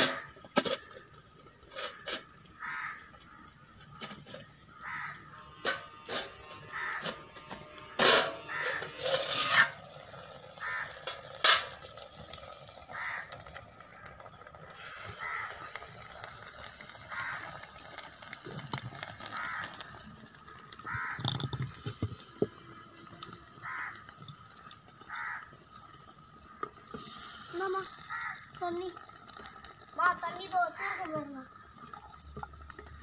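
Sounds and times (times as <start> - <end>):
crows cawing: 1.7 - 3.7, 4.7 - 7.4, 8.0 - 11.8, 12.7 - 18.4, 19.1 - 21.8, 22.5 - 26.9, 27.8 - 28.6, 30.6 - 31.2
metal lid clattering on clay pot: 5.6 - 9.8, 11.0 - 12.0.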